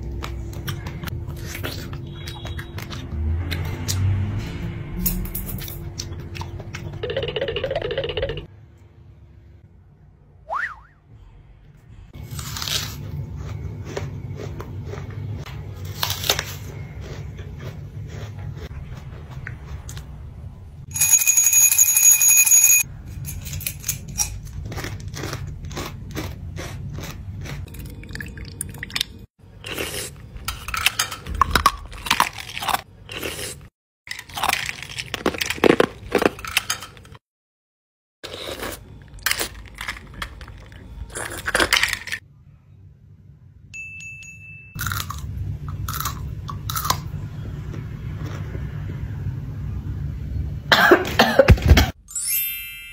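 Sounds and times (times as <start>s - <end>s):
loud bell-like ringing: 20.9s - 22.9s, 43.8s - 44.8s, 52.1s - 52.9s
candies crunching in mouth: 31.6s - 36.4s, 38.3s - 42.2s.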